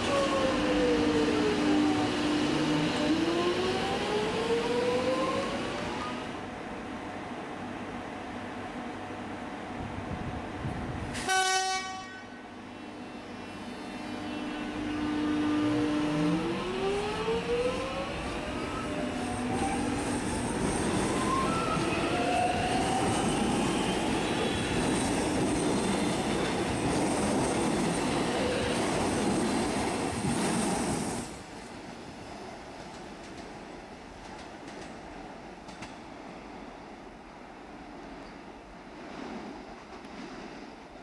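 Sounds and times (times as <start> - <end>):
train horn blast: 11.1 - 12.6, 13.8 - 16.1.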